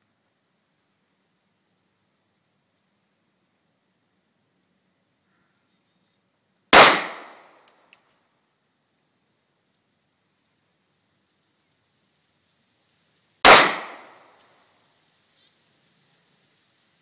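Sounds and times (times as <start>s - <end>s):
handgun shot: 6.8s - 7.6s, 13.5s - 14.4s.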